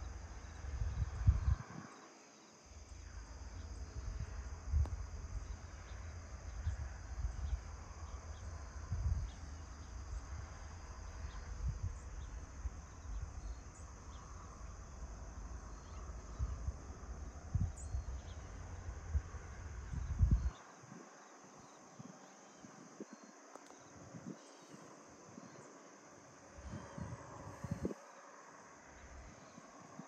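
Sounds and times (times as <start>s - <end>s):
insects chirping: 0.0s - 30.0s
wind buffeting microphone: 0.5s - 2.0s, 3.1s - 23.3s, 23.9s - 24.5s, 26.6s - 28.1s.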